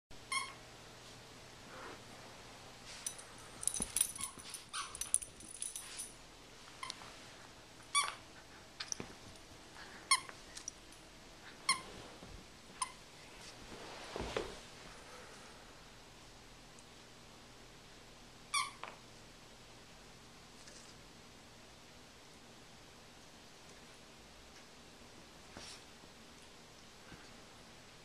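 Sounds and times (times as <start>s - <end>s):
squeaky toy squeaks: 0.3s - 0.6s, 4.2s - 5.0s, 7.9s - 8.2s.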